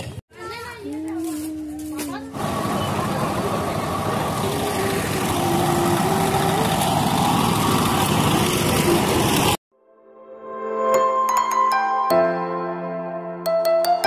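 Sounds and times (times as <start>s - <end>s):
road traffic engines: 1.2s - 9.6s.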